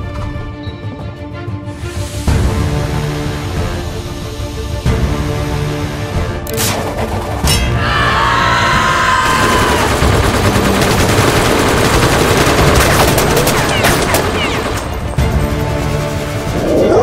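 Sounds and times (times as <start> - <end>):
rifle and machine-gun volleys: 9.5 - 15.1.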